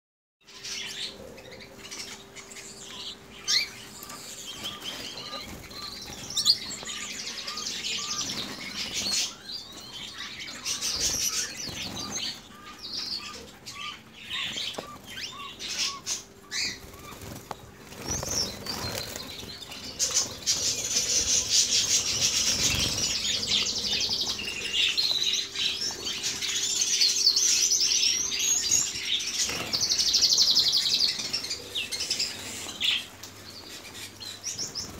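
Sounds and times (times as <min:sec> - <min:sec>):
canaries chirping: 0:00.4 - 0:34.9
high trilling birdsong: 0:00.4 - 0:34.9
wings fluttering: 0:10.6 - 0:12.4, 0:15.8 - 0:26.4.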